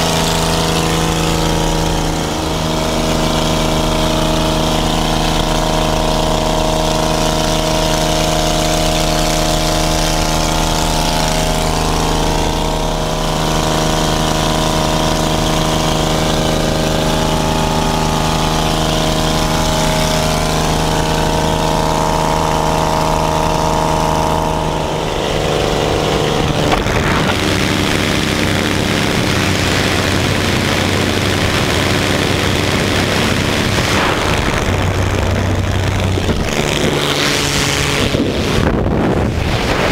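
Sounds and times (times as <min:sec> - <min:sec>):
piston engine running: 0:00.0 - 0:39.9
wind rushing: 0:33.3 - 0:39.9.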